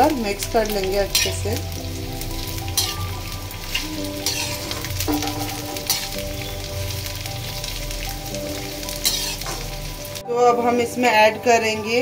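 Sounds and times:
vegetables sizzling in oil: 0:00.0 - 0:12.0
metal spatula scraping pan: 0:00.8 - 0:01.7, 0:02.3 - 0:06.6, 0:08.6 - 0:09.8.

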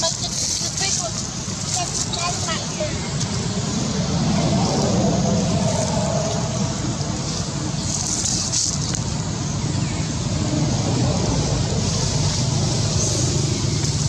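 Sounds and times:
even hiss: 0:00.0 - 0:14.0
low rumbling background noise: 0:00.0 - 0:14.0.

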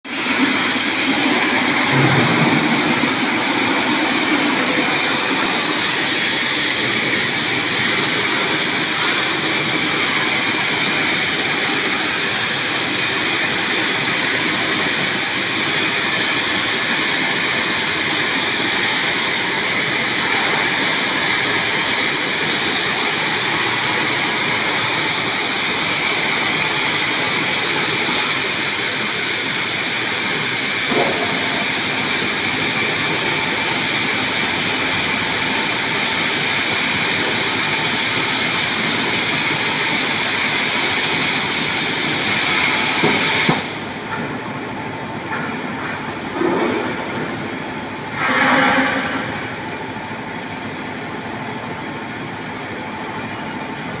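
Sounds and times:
plasma torches cutting steel hiss: 0:30.2 - 0:43.9.

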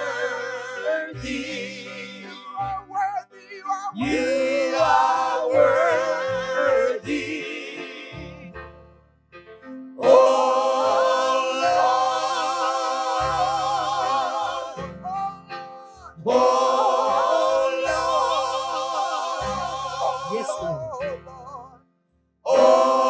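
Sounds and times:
choir singing in harmony: 0:00.0 - 0:02.7, 0:04.0 - 0:08.6, 0:10.0 - 0:15.1, 0:16.2 - 0:20.8, 0:22.5 - 0:23.0.

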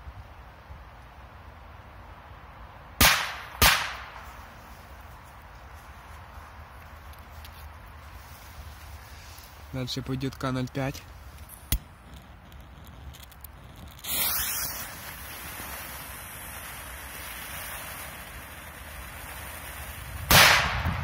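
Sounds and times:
firecracker fuse hissing: 0:08.1 - 0:21.0
firecracker bang: 0:14.0 - 0:15.5, 0:20.2 - 0:21.0.

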